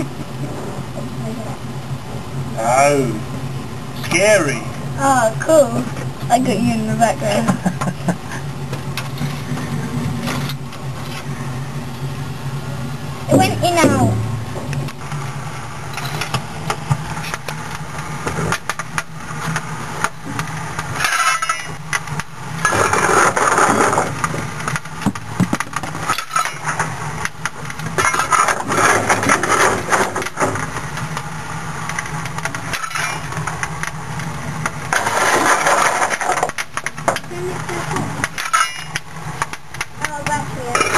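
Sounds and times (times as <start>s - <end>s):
fire rushing in firebox: 0.0s - 40.0s
low hum: 0.0s - 40.9s
clicks and knocks of tended fire: 15.9s - 37.3s.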